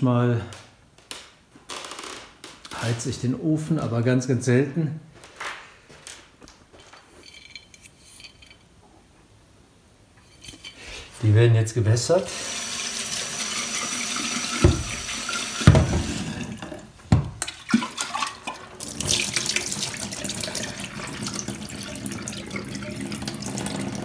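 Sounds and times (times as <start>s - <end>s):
tap running into steel sink: 14.2s - 16.3s.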